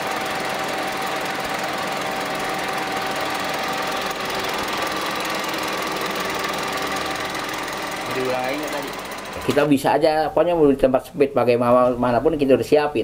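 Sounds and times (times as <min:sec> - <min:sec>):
steady whine: 0:00.0 - 0:10.1
projector mechanical whir: 0:00.0 - 0:10.2.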